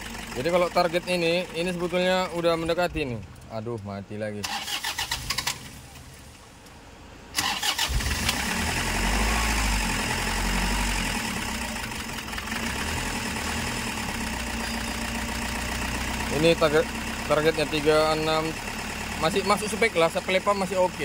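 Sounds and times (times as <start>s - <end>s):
diesel engine idling: 0.0s - 21.0s
starter motor cranking: 4.4s - 5.7s, 7.4s - 9.7s.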